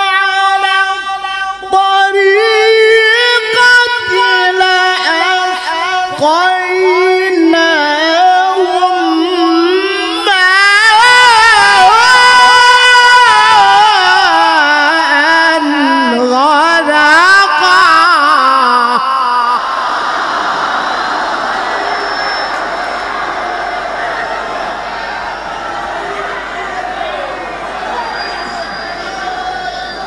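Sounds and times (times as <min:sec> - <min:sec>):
man reciting melodiously into microphone: 0:00.0 - 0:19.8.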